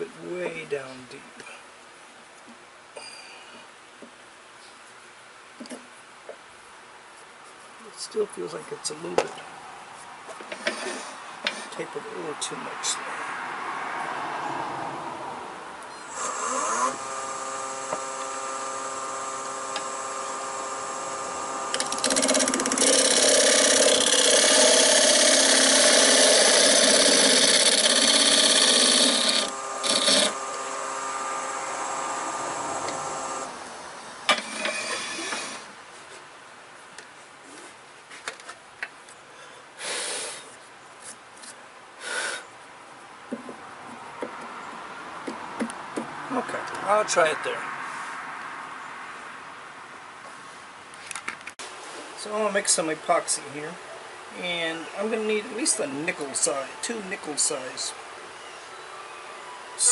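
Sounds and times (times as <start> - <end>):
turning tool cutting wood: 16.0 - 35.8
wood lathe whining: 16.0 - 35.8.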